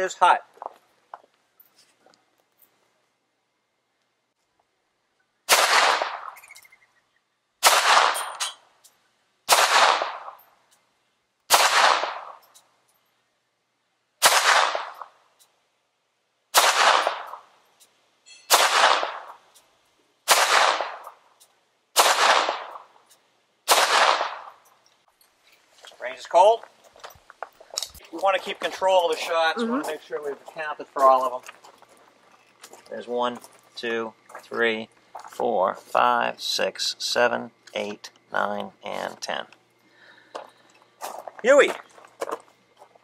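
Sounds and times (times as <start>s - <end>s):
pistol shots: 5.5s - 6.6s, 7.6s - 8.6s, 9.5s - 10.4s, 11.5s - 12.4s, 14.2s - 15.2s, 16.5s - 17.5s, 18.5s - 19.4s, 20.3s - 21.2s, 22.0s - 23.0s, 23.7s - 24.6s.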